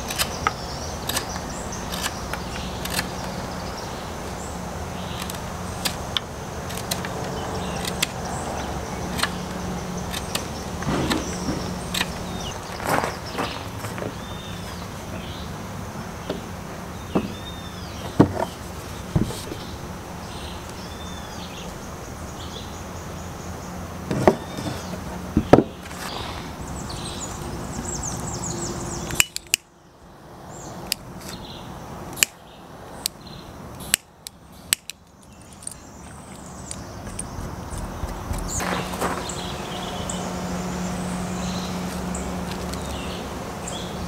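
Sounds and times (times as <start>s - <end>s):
crisp clicks: 0.0s - 3.4s, 5.1s - 12.2s, 29.1s - 29.7s, 33.8s - 38.6s
wood pieces knocking on workbench: 17.2s - 17.4s.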